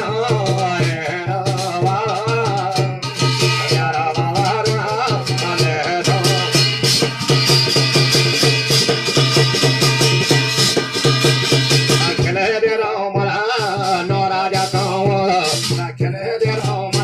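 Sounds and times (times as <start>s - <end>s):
man singing: 0.0s - 8.4s, 11.9s - 17.0s
fast beaten percussion: 0.0s - 17.0s.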